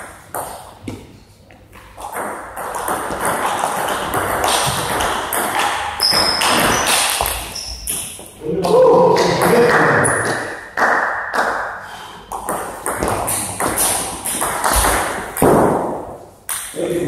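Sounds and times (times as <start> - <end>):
table tennis ball bouncing on table: 1.8 - 8.3, 12.3 - 16.8.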